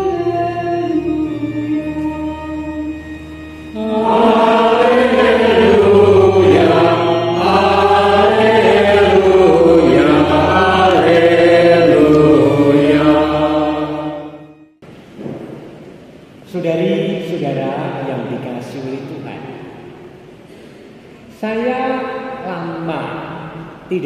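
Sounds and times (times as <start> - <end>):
congregation singing a hymn: 0.0 - 14.6.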